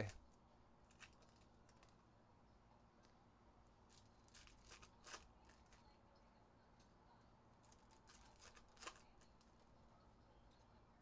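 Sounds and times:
trading cards clicking and rustling: 0.8 - 2.0, 3.8 - 5.8, 7.6 - 9.7.

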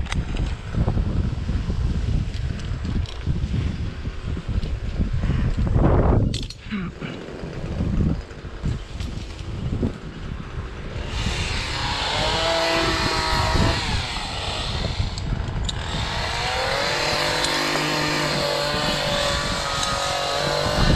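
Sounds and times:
engine running: 6.7 - 20.9
steady rushing noise: 7.0 - 20.9.

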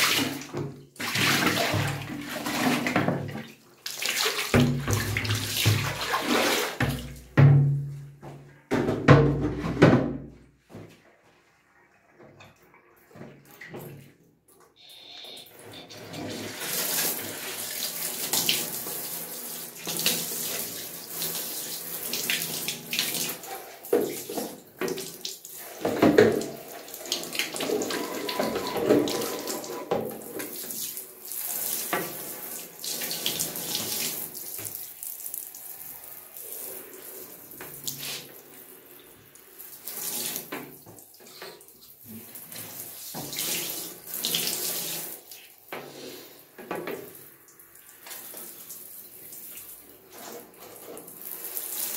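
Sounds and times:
shower spraying into bathtub: 3.9 - 7.2, 15.9 - 51.9.

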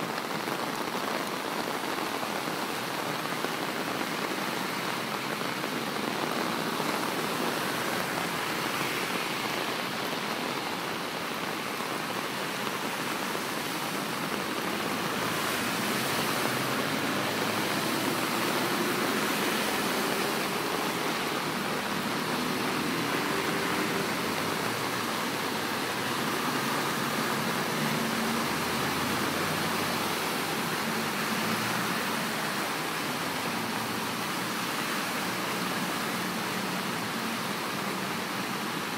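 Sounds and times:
heavy rain: 0.0 - 38.9
cars splashing through water: 0.2 - 38.9.

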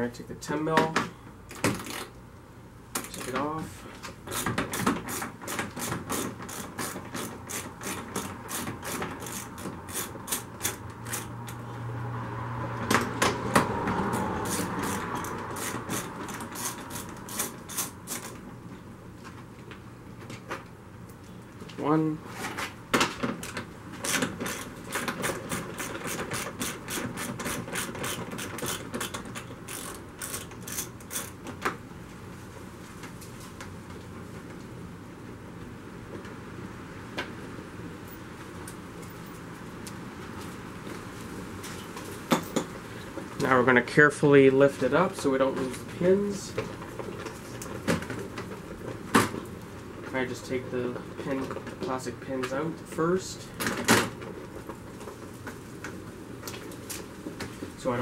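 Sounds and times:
ratchet wrench clicking: 6.1 - 11.6, 14.4 - 18.3, 25.8 - 31.4.

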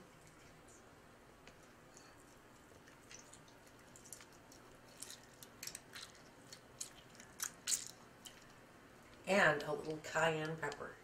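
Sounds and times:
lemon squishing: 1.5 - 9.2.

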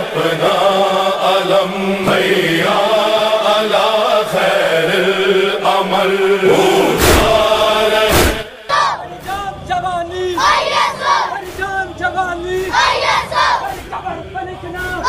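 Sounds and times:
voices chanting: 0.0 - 15.0
heavy thuds: 6.6 - 8.5.

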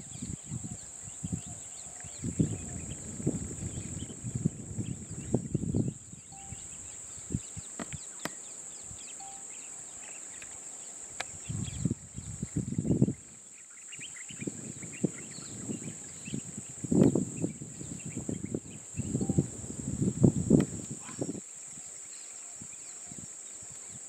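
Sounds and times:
high-pitched insect drone: 0.1 - 8.1, 8.8 - 10.2, 14.4 - 21.9
bird chirps: 4.8 - 19.9.

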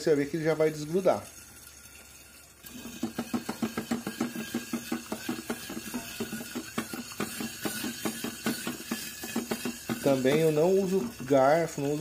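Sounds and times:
metallic ring: 1.2 - 12.0
frying pan rattling on stove grate: 2.7 - 12.0.

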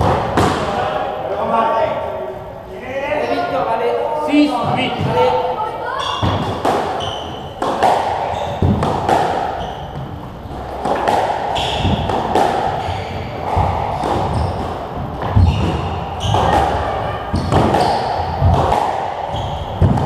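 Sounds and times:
squash ball hitting racquets and walls: 0.0 - 1.0, 4.5 - 20.0
shoes squeaking on wooden floor: 4.6 - 8.9, 9.5 - 20.0.

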